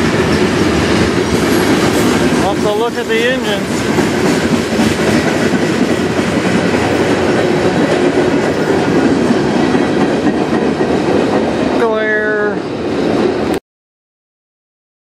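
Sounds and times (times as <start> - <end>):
wheels clicking over rail joints: 0.0 - 12.0
train wheels rumbling on rail: 0.0 - 13.6.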